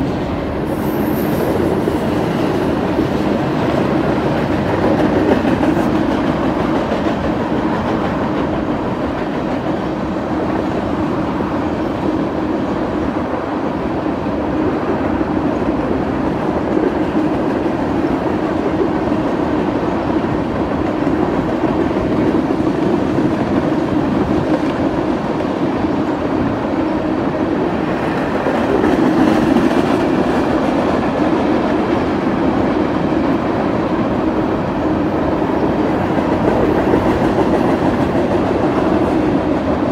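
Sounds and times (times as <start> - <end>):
steel wheels on rail: 0.0 - 13.9.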